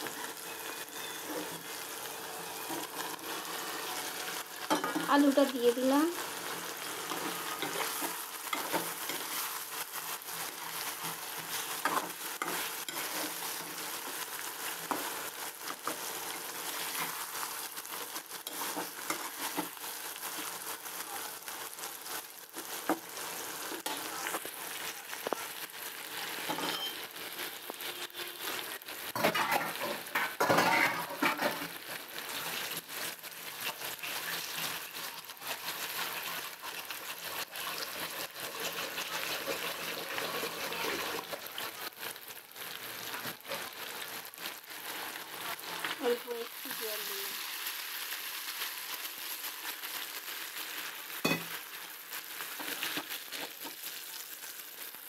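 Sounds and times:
metal spatula scraping pan: 0:00.0 - 0:05.1, 0:06.2 - 0:20.6, 0:26.3 - 0:27.0, 0:27.8 - 0:31.8
potatoes sizzling in oil: 0:00.0 - 0:55.0.

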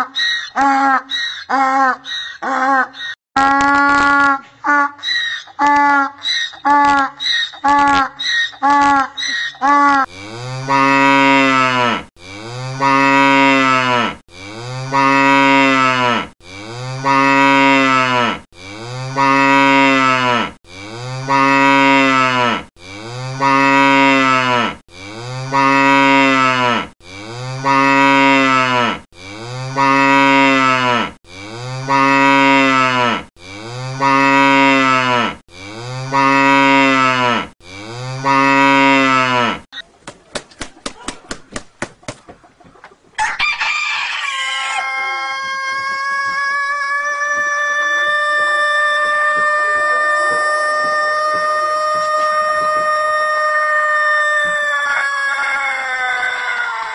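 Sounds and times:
cow mooing: 0:10.0 - 0:39.7.

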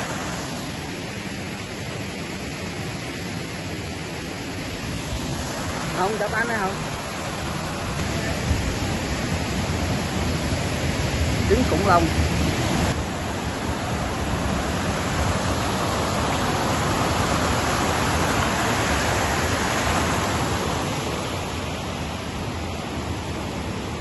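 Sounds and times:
water rushing over rocks: 0:00.0 - 0:24.0.

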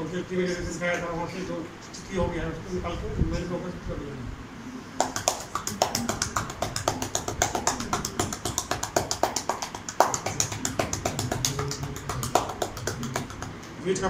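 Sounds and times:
hands chopping on bare back: 0:05.0 - 0:13.7.

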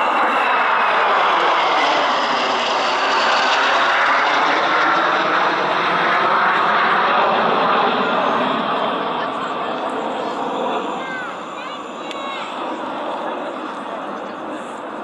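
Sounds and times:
jets passing overhead: 0:00.0 - 0:15.0.

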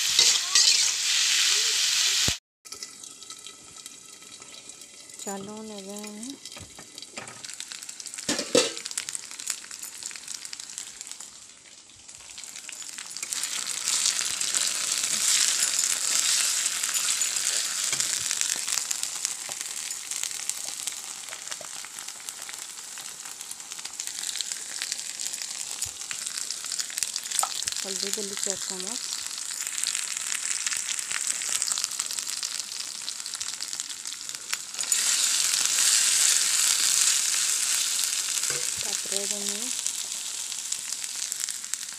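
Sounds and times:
prawns sizzling in oil: 0:00.0 - 0:41.9
metal clank: 0:08.3 - 0:08.9.

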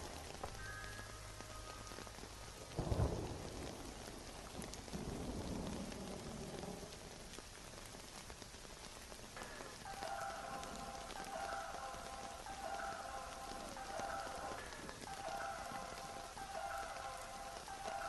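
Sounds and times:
thunder rumbling: 0:00.0 - 0:08.3
steady rain falling: 0:00.0 - 0:18.0.

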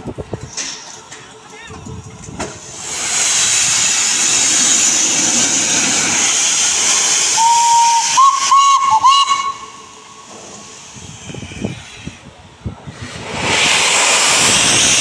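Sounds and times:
steam hissing: 0:02.5 - 0:15.0
steam whistle: 0:07.2 - 0:10.4.

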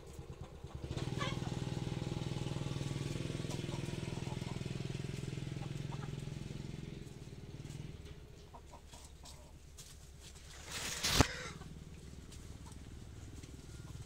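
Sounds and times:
hen clucks: 0:00.2 - 0:01.8, 0:03.2 - 0:09.7, 0:10.5 - 0:14.0.

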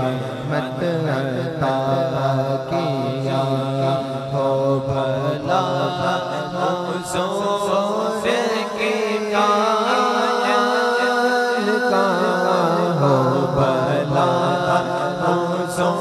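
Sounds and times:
man singing devotional chant: 0:00.0 - 0:16.0
steady held drone: 0:00.0 - 0:16.0.

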